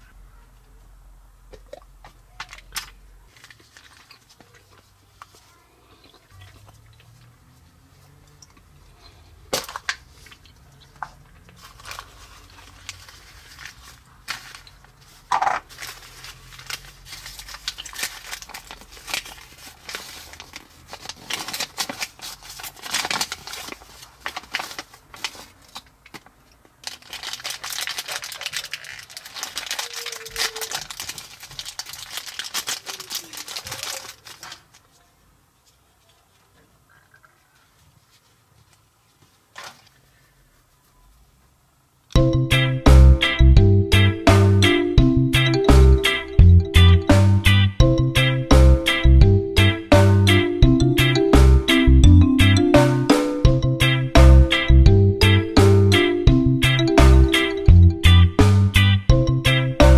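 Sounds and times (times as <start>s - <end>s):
plastic wrapping crinkling: 2.3s - 7.3s, 9.5s - 41.0s.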